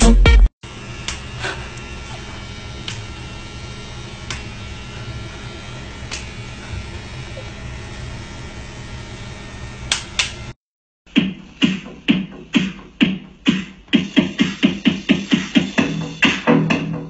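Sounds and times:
electric pet clipper buzzing: 0.6 - 10.6.

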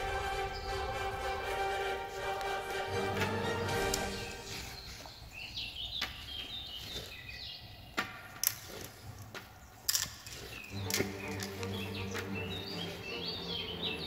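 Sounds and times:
music: 0.0 - 4.8, 10.7 - 14.0
birds chirping: 0.0 - 14.0
metal chain clicking: 9.9 - 11.5.

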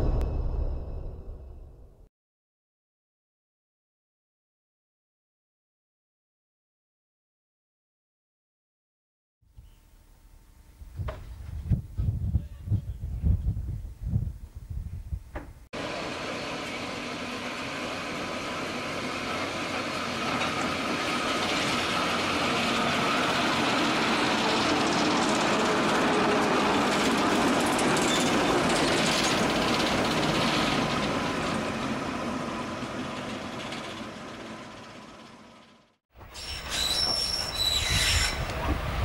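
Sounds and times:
diesel locomotive engine: 15.8 - 39.0.

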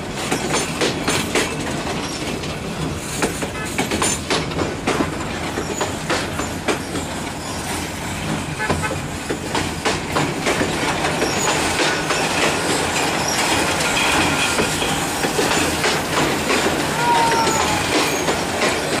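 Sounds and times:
train rumbling past: 0.0 - 19.0
wheels clattering over rail joints: 0.0 - 19.0.

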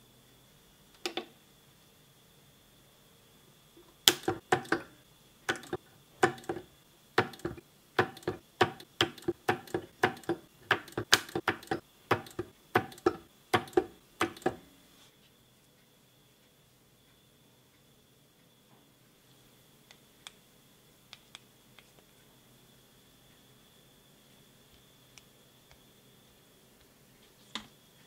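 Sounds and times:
spot welder snapping: 4.0 - 4.9, 5.5 - 6.6, 7.2 - 14.6.

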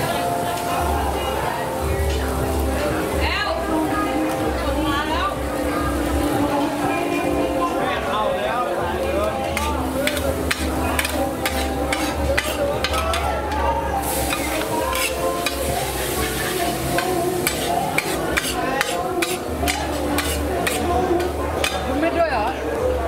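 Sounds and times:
metal spatula scraping a pan: 9.5 - 13.3, 14.0 - 20.9
noodles sizzling in a pan: 9.5 - 21.8.

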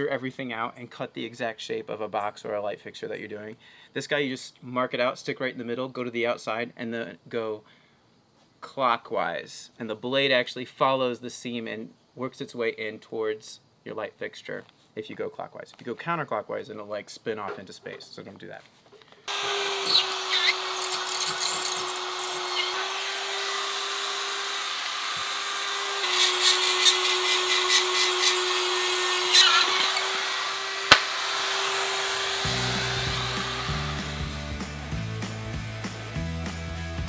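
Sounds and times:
spiral saw whining: 19.3 - 34.9
sharp knock: 30.9 - 31.2
music with rhythmic beat: 32.5 - 37.0.

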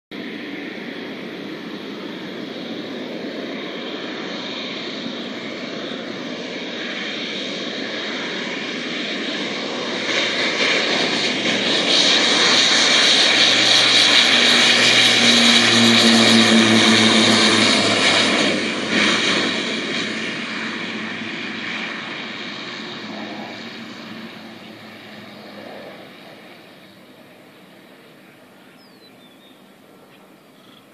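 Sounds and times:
turboprop plane taking off: 0.1 - 30.9.

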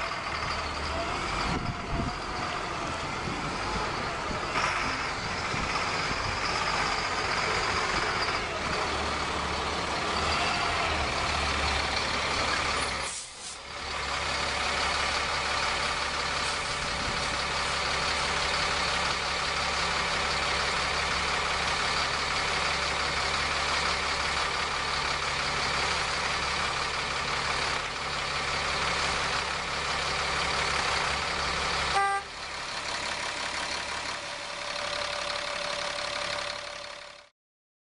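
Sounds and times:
diesel truck engine running: 0.0 - 37.3.

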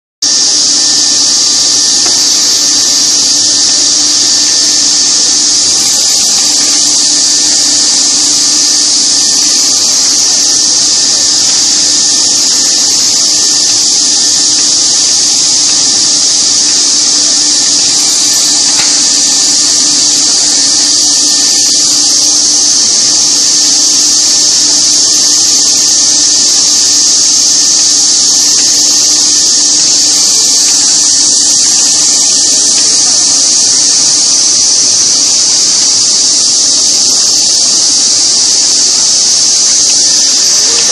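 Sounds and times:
cutting machine high-pitched hiss: 0.2 - 40.9
machine hum: 0.2 - 40.9.

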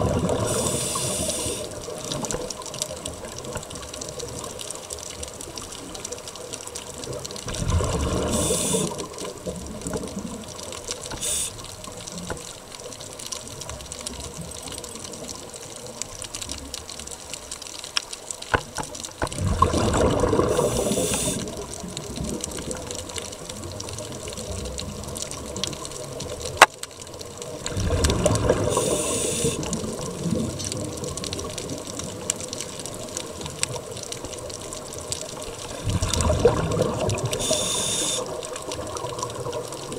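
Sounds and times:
watery hiss: 0.0 - 2.0, 7.6 - 9.3, 11.1 - 12.0, 19.6 - 21.8, 28.2 - 29.9, 35.6 - 38.6
exhaled bubbles rushing underwater: 0.0 - 12.4, 19.2 - 26.6, 27.2 - 39.9.

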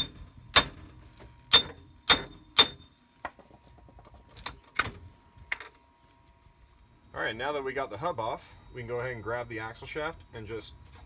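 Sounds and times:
hammer striking metal hub: 0.0 - 2.9.

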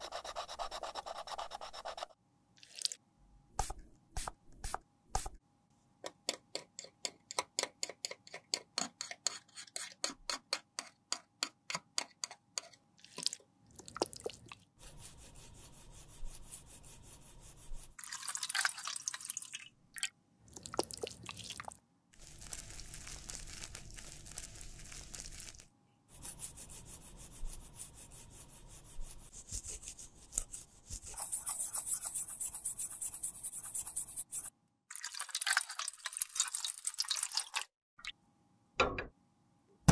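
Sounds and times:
tissue rubbing metal pan: 22.2 - 34.5.

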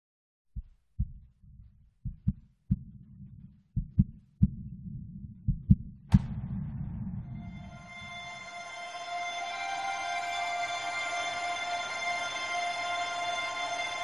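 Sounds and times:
heartbeat thumps: 0.6 - 7.7
low hum: 1.0 - 14.0
sharp hit: 6.1 - 9.6
song music: 6.2 - 14.0.

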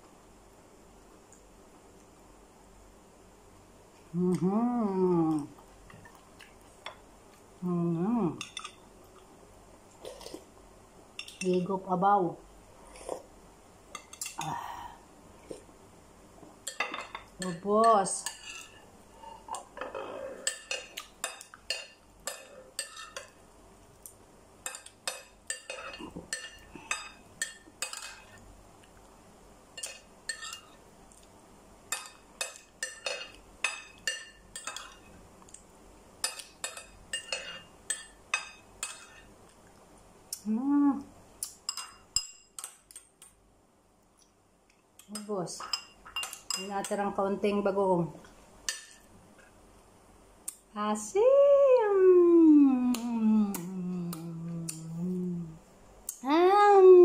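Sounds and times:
cutlery clinking on a plate: 36.2 - 39.3.

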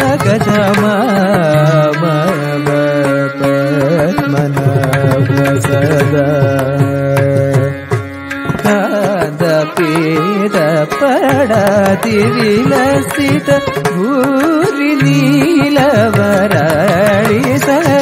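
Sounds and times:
man singing ornamented phrases: 0.0 - 8.0, 8.6 - 18.0.

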